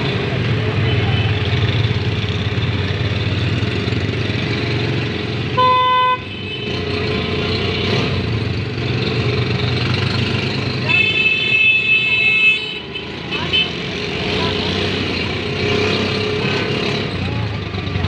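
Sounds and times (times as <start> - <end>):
street traffic: 0.0 - 18.0
car horn honk: 5.5 - 6.7.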